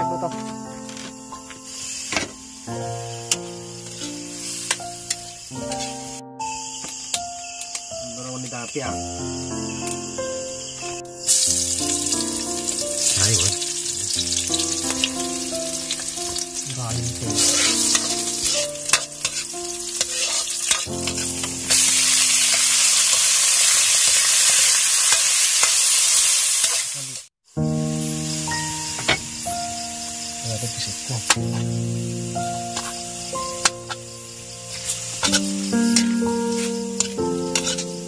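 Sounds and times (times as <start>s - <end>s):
garlic and onion sizzling in oil: 1.1s - 38.0s
metal spatula stirring: 17.3s - 22.7s, 34.7s - 38.0s.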